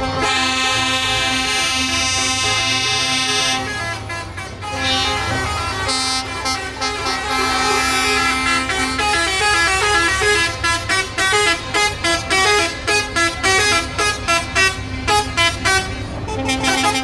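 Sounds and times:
diesel engine rumble: 0.0 - 17.0
musical truck horn tune: 0.0 - 17.0.

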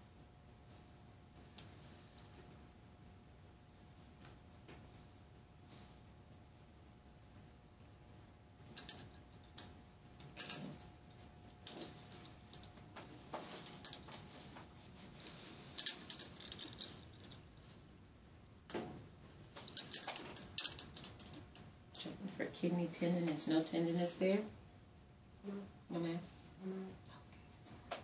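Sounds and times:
hands rustling on cotton shirt: 11.8 - 17.8.

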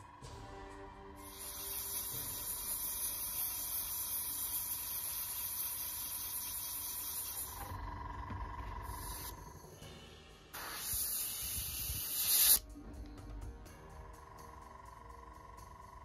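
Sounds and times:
airbrush hissing: 1.2 - 7.8, 8.8 - 9.7, 10.5 - 12.6.

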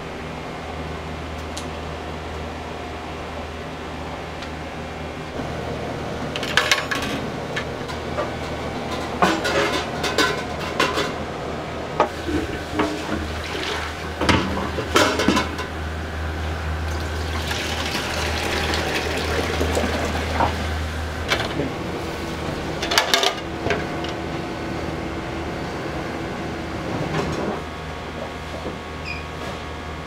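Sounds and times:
steady low hum: 0.0 - 30.0
metal pots clanking: 6.4 - 11.2, 12.1 - 15.8
liquid pouring into metal containers: 16.8 - 21.1.

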